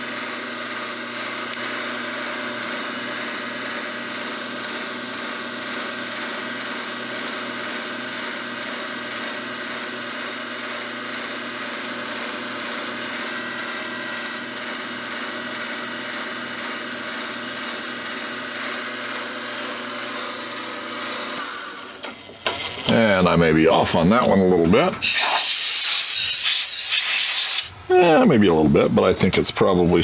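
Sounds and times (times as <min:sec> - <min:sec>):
milling machine spindle whine: 0:00.0 - 0:26.6
cutter taking metal chips: 0:25.0 - 0:27.7.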